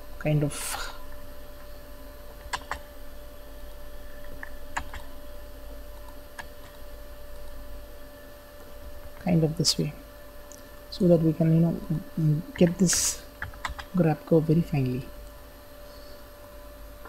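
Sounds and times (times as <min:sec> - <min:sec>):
electrical hum: 0:00.0 - 0:17.0
computer mouse clicks: 0:02.4 - 0:02.8, 0:04.3 - 0:05.1, 0:12.9 - 0:14.0.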